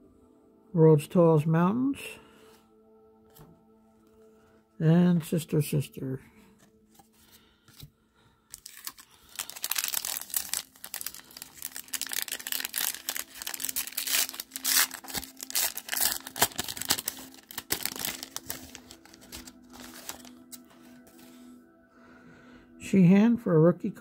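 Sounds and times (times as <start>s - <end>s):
foil wrapper crinkling and tearing: 8.5s - 21.0s.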